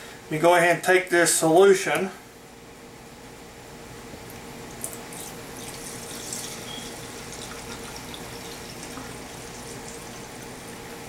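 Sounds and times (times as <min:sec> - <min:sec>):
liquid sloshing in glass carafe: 0:05.1 - 0:10.8.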